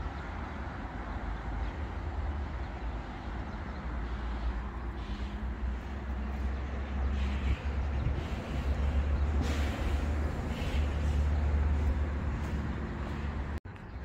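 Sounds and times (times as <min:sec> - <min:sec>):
wind rumbling on microphone: 0:04.6 - 0:14.0.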